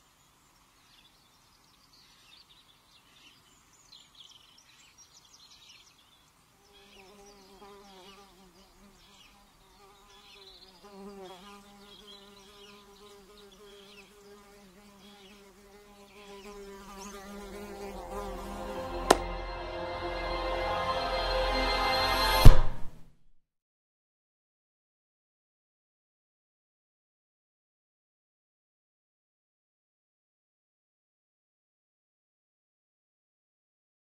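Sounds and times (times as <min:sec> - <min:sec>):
fly buzzing: 0:06.6 - 0:19.4.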